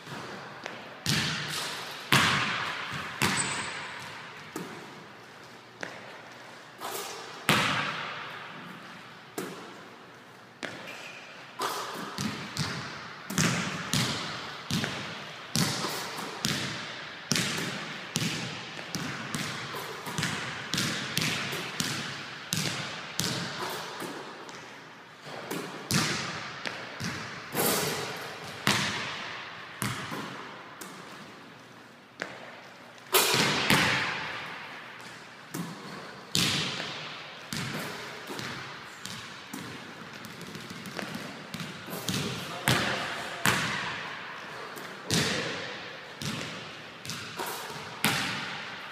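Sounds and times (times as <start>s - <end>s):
basketballs bouncing on wood floor: 0.0s - 4.9s, 7.5s - 8.3s, 12.2s - 23.6s, 24.5s - 27.4s, 28.4s - 31.2s, 33.3s - 34.6s, 35.5s - 44.1s, 45.1s - 48.7s.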